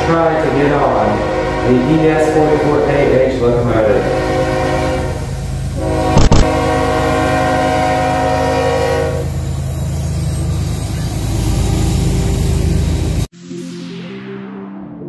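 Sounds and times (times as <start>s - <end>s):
locomotive horn chord: 0.0s - 9.4s
freight train rumbling by: 0.0s - 13.3s.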